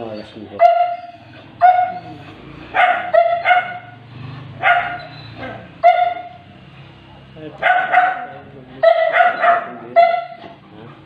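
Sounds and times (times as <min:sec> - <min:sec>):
small dog yapping: 0:00.6 - 0:04.0, 0:04.6 - 0:06.4, 0:07.6 - 0:10.5.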